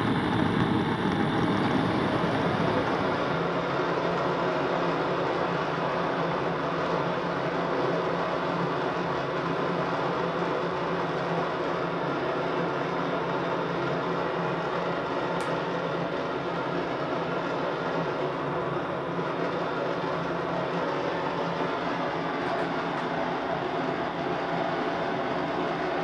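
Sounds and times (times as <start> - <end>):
blowtorch flame hissing: 0.0 - 4.2.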